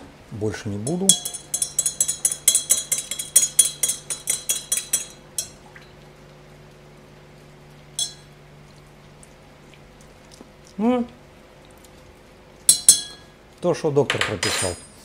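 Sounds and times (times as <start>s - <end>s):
spoon clinking against glass: 0.9s - 5.6s, 8.0s - 8.3s, 12.7s - 13.4s.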